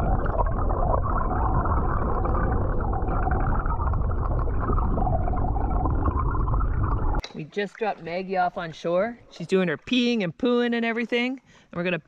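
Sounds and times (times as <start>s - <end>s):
muffled underwater rushing and gurgling: 0.0s - 7.2s.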